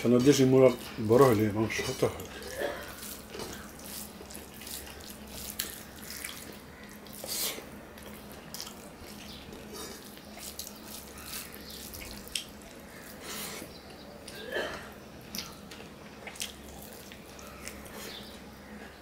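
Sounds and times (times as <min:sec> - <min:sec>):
wet chewing: 0:00.2 - 0:18.5
fingers squishing rice: 0:02.5 - 0:14.4.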